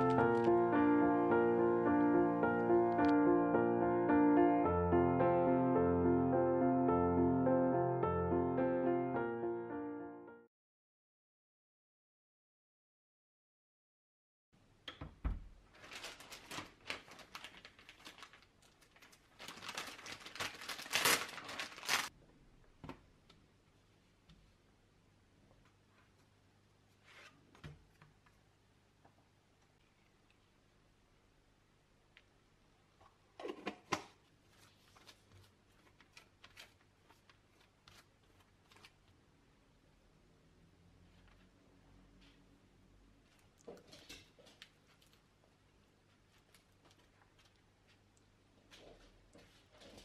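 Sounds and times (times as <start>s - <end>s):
plastic packet crinkling: 0.0s - 0.7s, 15.7s - 22.1s.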